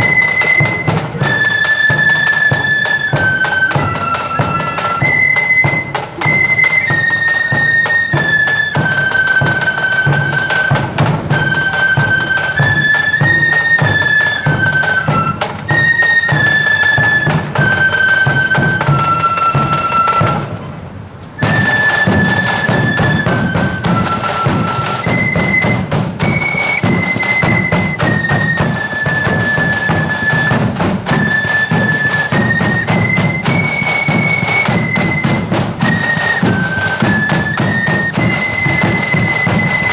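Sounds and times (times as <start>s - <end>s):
steady drum beats: 0.0s - 20.6s, 21.4s - 39.9s
flutes playing a melody: 0.0s - 39.9s.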